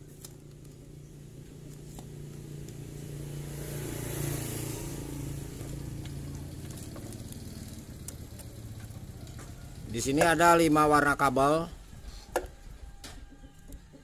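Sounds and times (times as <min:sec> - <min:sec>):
motor vehicle engine running: 0:00.0 - 0:10.3.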